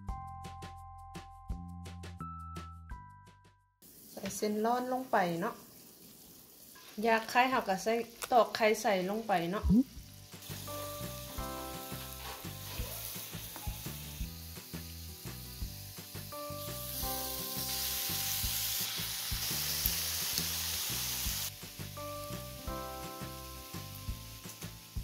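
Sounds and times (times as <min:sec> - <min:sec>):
background music with a beat: 0:00.0 - 0:03.7, 0:13.3 - 0:17.6, 0:21.5 - 0:25.0
meat sizzling on a grill: 0:03.8 - 0:25.0.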